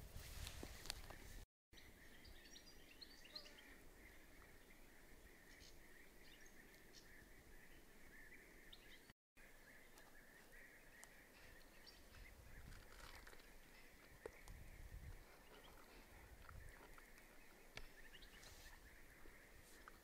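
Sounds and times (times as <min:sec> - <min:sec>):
soft rustling: 0:00.0 - 0:01.4
bird chirps: 0:01.8 - 0:20.0.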